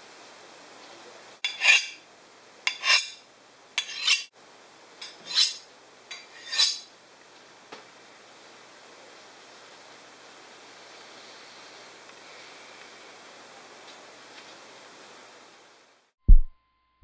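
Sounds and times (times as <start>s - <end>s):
knife scraping honing rod: 1.4s - 2.0s, 2.7s - 3.2s, 3.8s - 4.3s, 5.0s - 6.9s.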